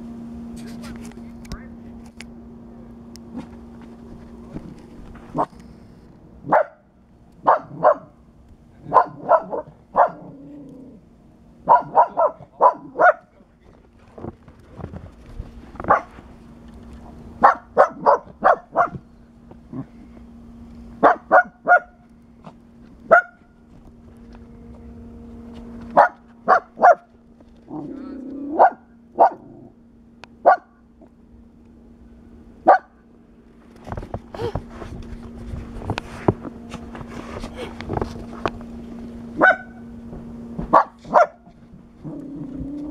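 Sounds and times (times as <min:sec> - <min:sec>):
small dog barking: 0:06.4 - 0:06.8, 0:07.4 - 0:08.2, 0:08.8 - 0:10.4, 0:11.6 - 0:13.3, 0:15.9 - 0:16.1, 0:17.4 - 0:19.0, 0:21.0 - 0:22.0, 0:23.1 - 0:23.4, 0:25.9 - 0:27.1, 0:28.5 - 0:29.5, 0:30.4 - 0:30.8, 0:32.6 - 0:33.0, 0:39.4 - 0:39.8, 0:40.7 - 0:41.5.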